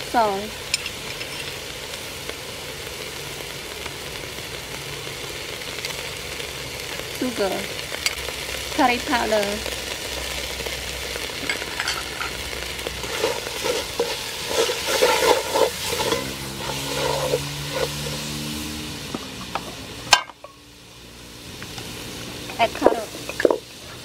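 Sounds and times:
spice paste sizzling in oil: 0:00.0 - 0:24.0
wooden spatula scraping pot: 0:13.0 - 0:18.4.

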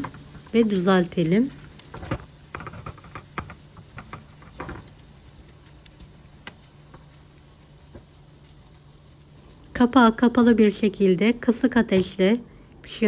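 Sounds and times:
spatula tapping frying pan: 0:02.0 - 0:07.0.

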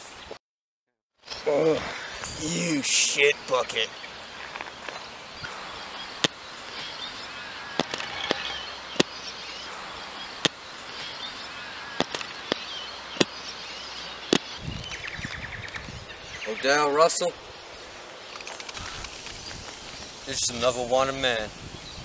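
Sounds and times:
faint bird chirps: 0:13.7 - 0:16.9
sharp clicks: 0:14.6 - 0:16.0, 0:18.3 - 0:19.8.

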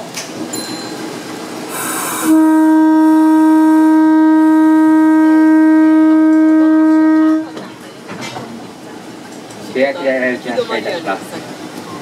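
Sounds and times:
train horn blast: 0:01.7 - 0:07.8.

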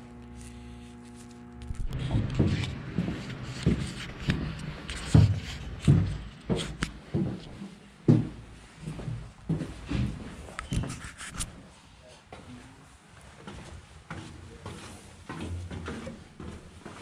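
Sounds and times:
faint scuffing: 0:00.3 - 0:17.0
footsteps on steel deck: 0:01.8 - 0:10.8, 0:13.4 - 0:17.0.

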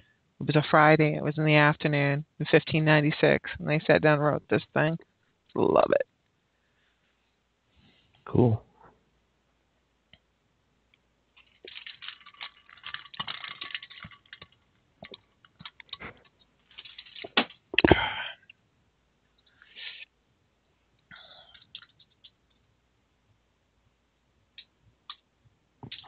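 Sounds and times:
computer keyboard typing: 0:11.4 - 0:17.4, 0:21.3 - 0:22.6.

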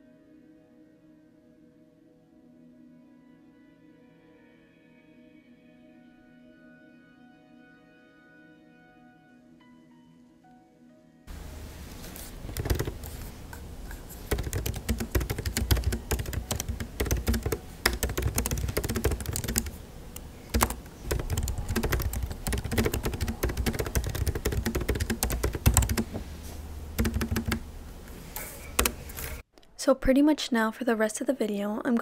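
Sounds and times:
laptop keyboard typing: 0:11.3 - 0:26.3, 0:27.0 - 0:27.7, 0:28.6 - 0:29.4.

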